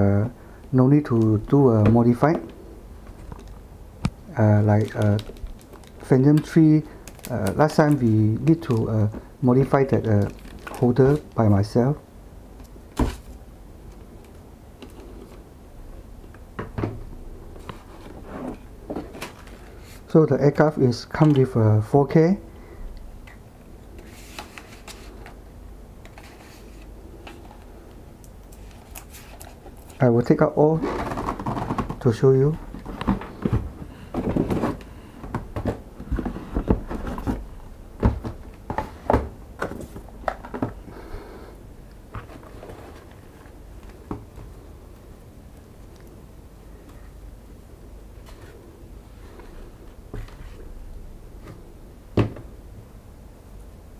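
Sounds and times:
packaging knocks scrapes and rustles: 0:30.8 - 0:32.1, 0:32.7 - 0:40.8, 0:42.1 - 0:44.0.

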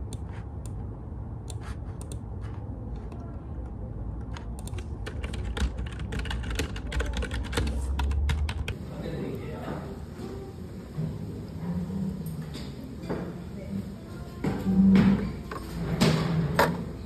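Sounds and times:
computer keyboard typing: 0:04.2 - 0:08.8.

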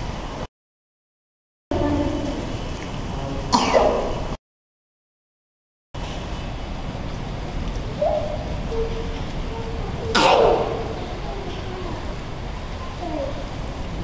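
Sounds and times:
rainstorm over flooded street: 0:06.0 - 0:14.0.

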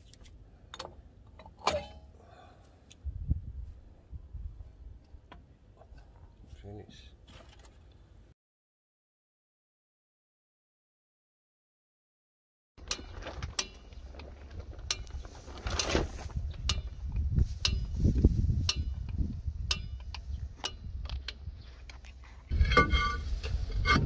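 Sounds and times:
steel brake drum scraping and ringing: 0:22.5 - 0:24.0.

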